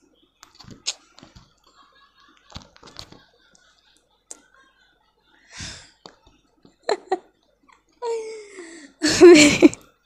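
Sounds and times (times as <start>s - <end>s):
breath: 5.5s - 6.0s, 8.3s - 9.0s
young woman giggling: 6.8s - 9.9s.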